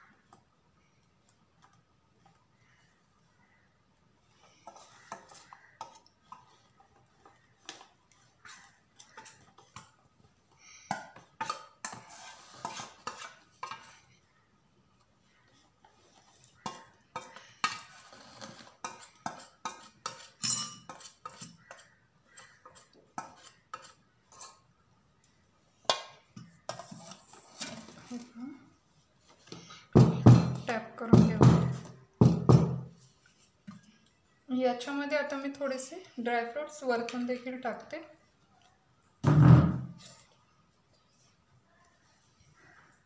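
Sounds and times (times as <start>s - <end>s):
utensil scraping batter from bowl: 11.2s - 14.1s, 15.9s - 24.6s, 26.4s - 28.3s.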